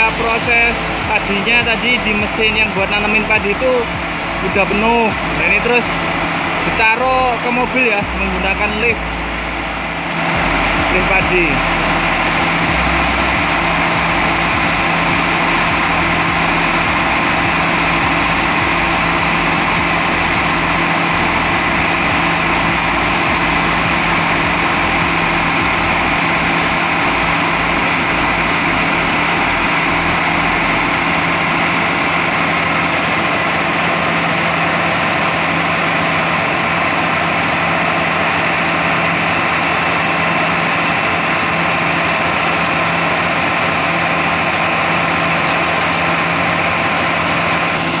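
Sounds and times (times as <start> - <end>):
combine harvester running: 0.0 - 48.0
auger conveying grain: 9.8 - 48.0.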